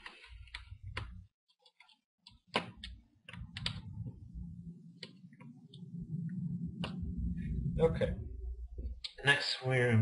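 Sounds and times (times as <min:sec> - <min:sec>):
faint low hum: 0:02.8 - 0:10.0.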